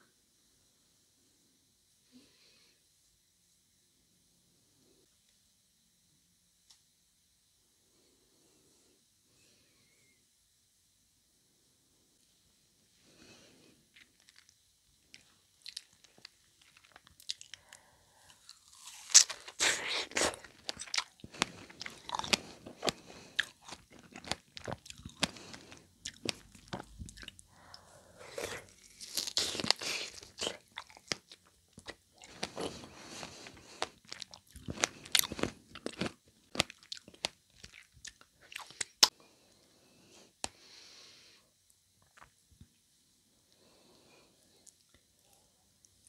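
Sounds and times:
biting and chewing: 18.4 - 27.4, 28.3 - 39.1.

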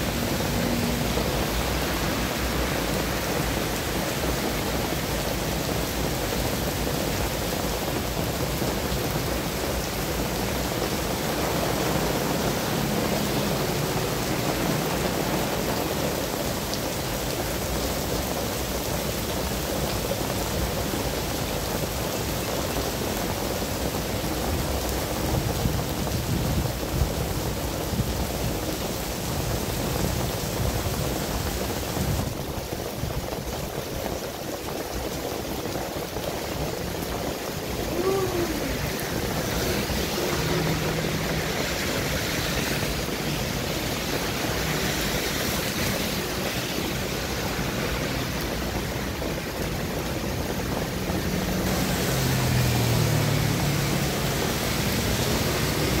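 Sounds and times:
heavy rain on road: 0.0 - 56.0
tyres hissing on wet asphalt: 0.0 - 56.0.

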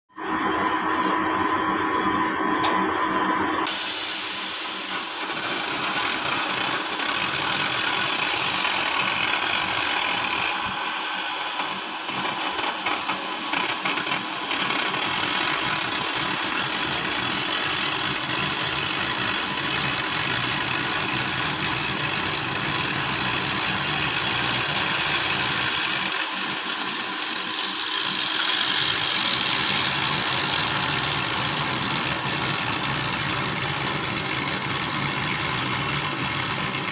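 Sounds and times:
cutting torch hissing: 3.6 - 36.9.

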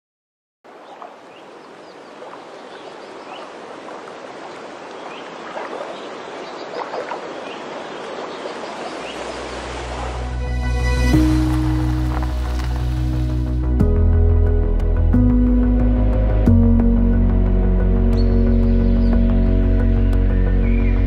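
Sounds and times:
stream running water: 0.6 - 13.9.

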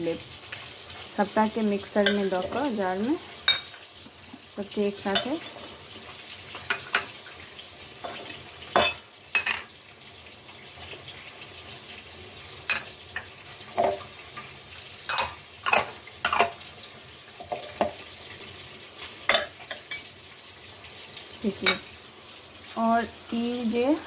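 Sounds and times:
kitchen utensils clinking: 2.0 - 2.8, 3.4 - 3.8, 5.1 - 5.7, 6.5 - 7.2, 8.0 - 9.7, 12.6 - 14.1, 15.1 - 16.6, 17.4 - 18.0, 19.3 - 20.1, 21.5 - 21.9.

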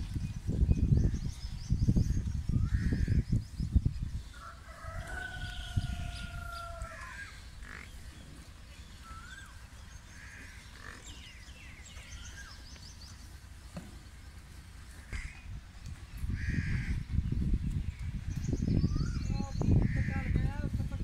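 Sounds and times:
small birds chirping: 0.0 - 21.0
rooster crowing: 4.4 - 7.3.

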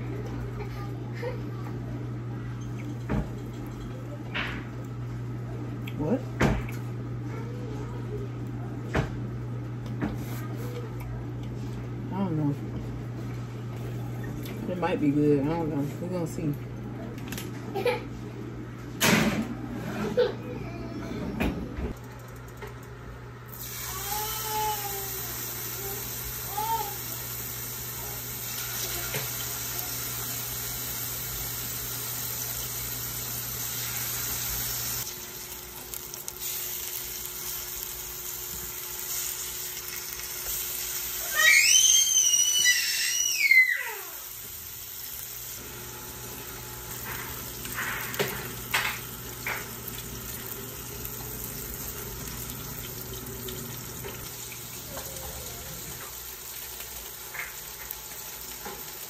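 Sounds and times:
fish sizzling in a pan: 23.5 - 59.0.

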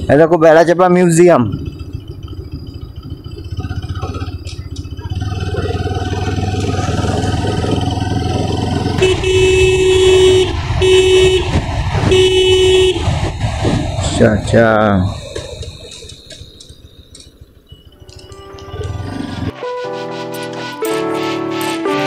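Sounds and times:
motorcycle engine running: 0.0 - 19.6
vehicle horn blasts: 8.9 - 13.2.

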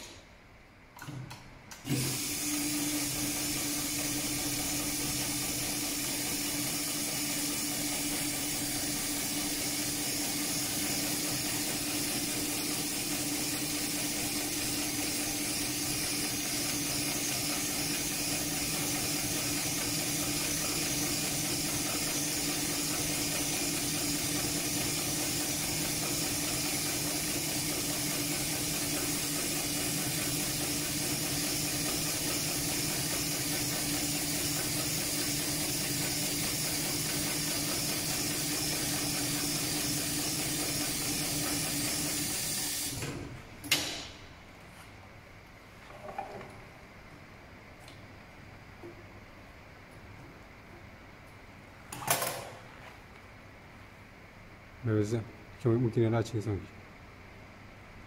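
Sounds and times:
sewing machine humming: 1.8 - 43.3.

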